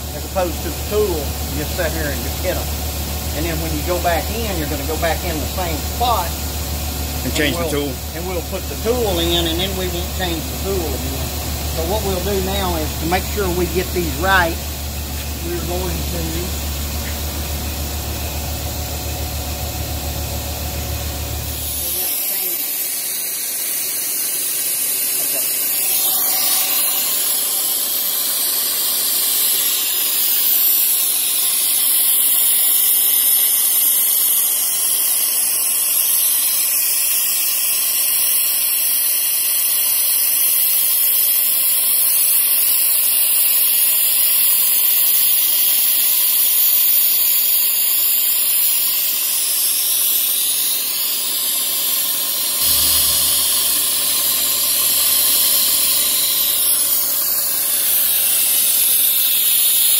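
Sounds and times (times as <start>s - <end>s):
drill boring into steel: 0.0s - 17.4s, 18.1s - 59.9s
coolant mist spraying hiss: 0.0s - 59.9s
low hum: 52.6s - 59.4s.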